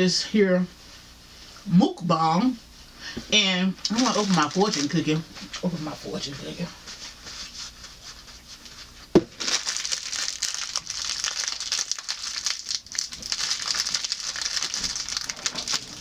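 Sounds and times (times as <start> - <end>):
plastic wrapper crinkling: 3.8 - 5.7, 9.3 - 16.0.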